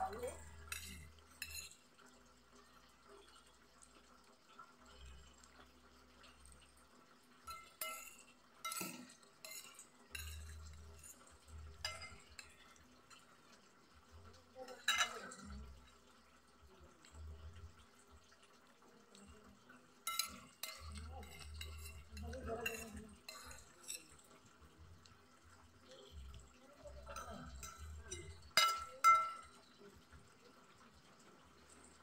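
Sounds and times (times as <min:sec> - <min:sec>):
cutlery clinking on glass plate: 0:00.1 - 0:01.9, 0:07.4 - 0:13.3, 0:14.6 - 0:15.6, 0:20.0 - 0:24.4, 0:27.0 - 0:29.7.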